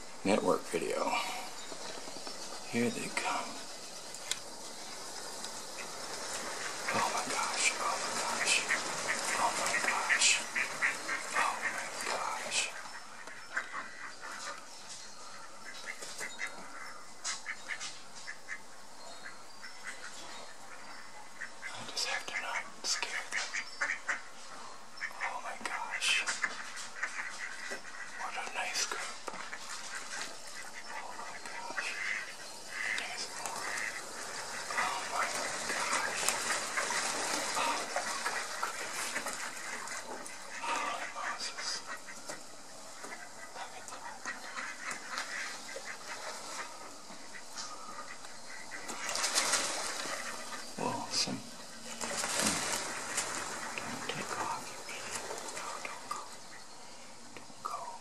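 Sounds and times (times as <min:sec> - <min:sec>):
water splashing: 0:02.8 - 0:13.0, 0:28.3 - 0:56.5
ducks quacking: 0:04.9 - 0:56.8.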